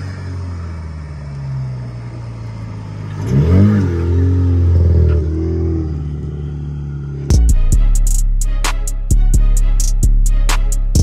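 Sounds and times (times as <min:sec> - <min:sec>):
car engine revving: 0:00.0 - 0:07.7.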